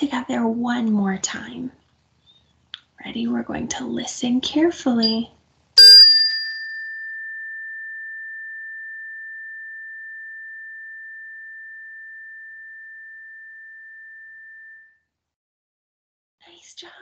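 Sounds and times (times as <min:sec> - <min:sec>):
tone bar ringing: 0:05.0 - 0:05.2, 0:05.8 - 0:14.8.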